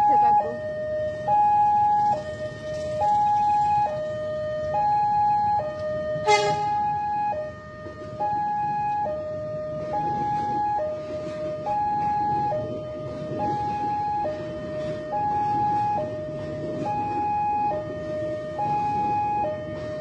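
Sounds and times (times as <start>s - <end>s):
traffic noise: 0.0s - 20.0s
two-tone crossing alarm: 0.0s - 20.0s.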